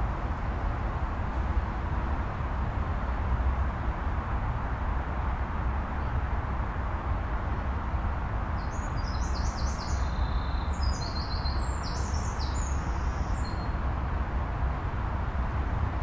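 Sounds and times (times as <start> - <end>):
songbird chirping: 8.6 - 13.8.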